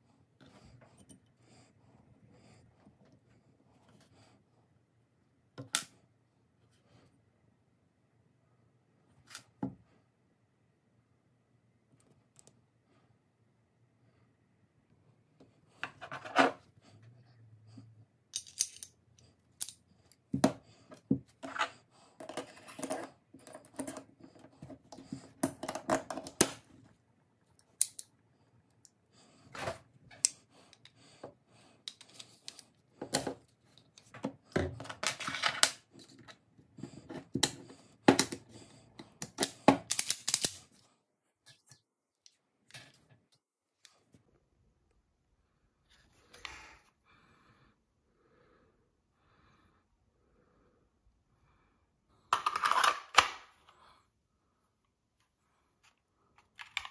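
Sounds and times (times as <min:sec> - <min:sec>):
tools clicking and scraping: 0:18.3 - 0:26.7, 0:27.6 - 0:28.1, 0:31.8 - 0:40.8.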